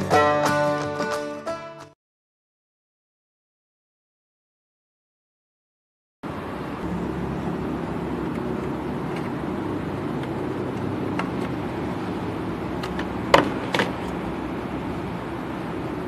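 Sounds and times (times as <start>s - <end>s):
low hum: 6.2s - 16.0s.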